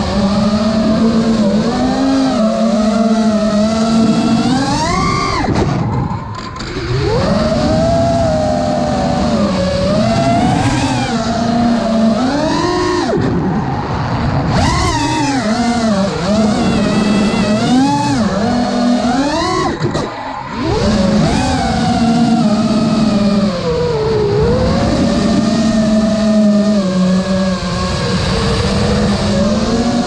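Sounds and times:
quadcopter motors whining: 0.0 - 30.0.

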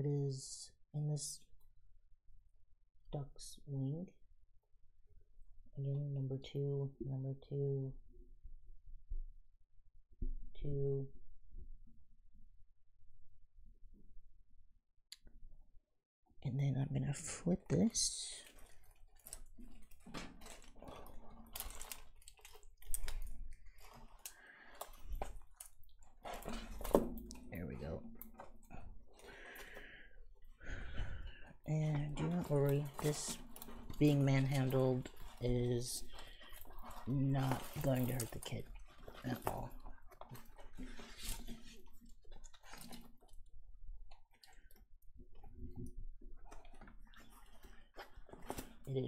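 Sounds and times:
plastic film crinkling: 17.7 - 29.9, 31.9 - 44.8, 46.4 - 49.0.

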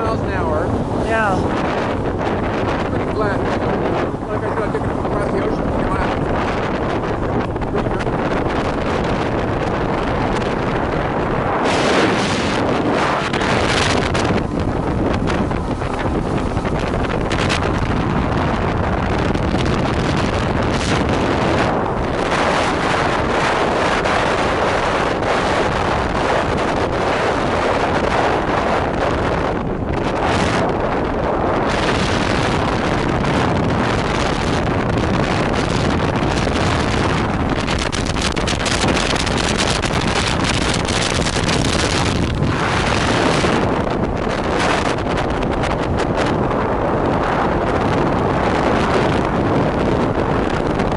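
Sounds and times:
outboard motor: 0.0 - 50.9
water rushing from wake: 0.0 - 50.9
wind buffeting microphone: 0.0 - 50.9
rapid crackles: 31.6 - 46.4.

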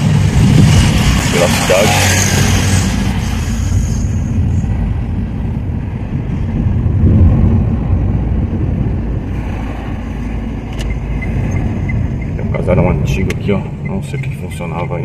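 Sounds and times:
car engine and tyres rumbling: 0.0 - 15.0.

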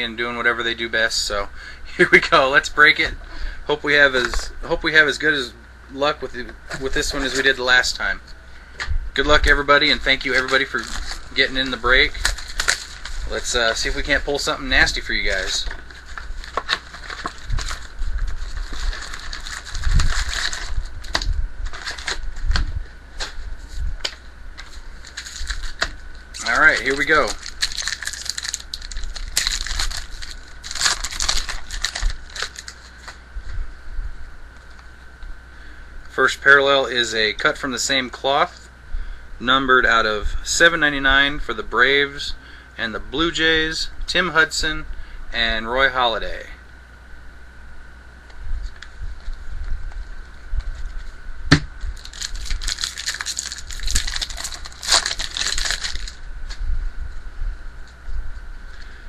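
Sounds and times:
foil wrapper crinkling: 6.7 - 8.0, 9.3 - 23.4, 24.1 - 33.2, 51.8 - 56.6
cards being handled: 9.8 - 23.4, 24.0 - 33.2.

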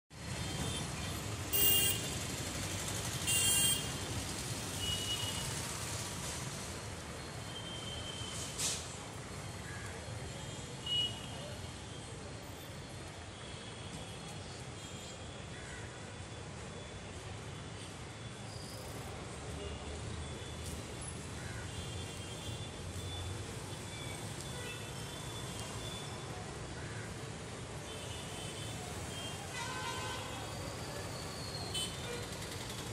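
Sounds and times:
road traffic rumble: 0.1 - 32.9
vehicle horn honks: 1.5 - 2.2.

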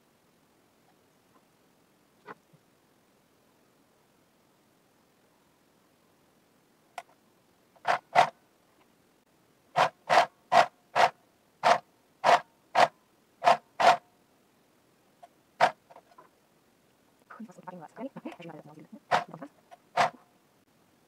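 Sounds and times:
sewing machine stitching: 19.1 - 20.2.

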